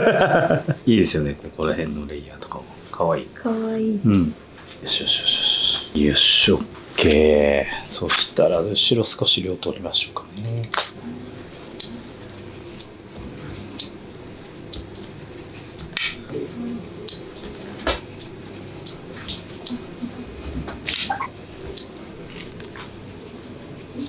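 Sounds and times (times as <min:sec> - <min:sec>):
scissors snipping hair: 0:10.4 - 0:21.9.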